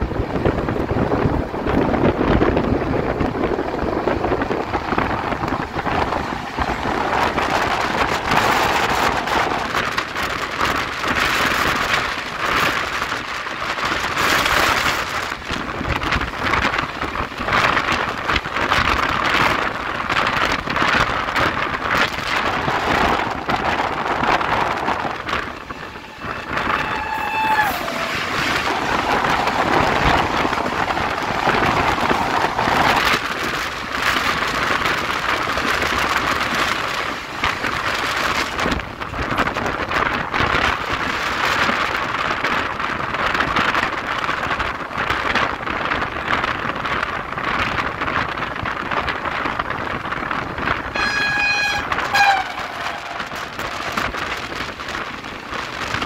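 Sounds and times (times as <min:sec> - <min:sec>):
train wheels clattering on track: 0:00.0 - 0:56.0
wind rushing on microphone: 0:00.0 - 0:56.0
train horn: 0:25.5 - 0:30.6, 0:50.9 - 0:54.4.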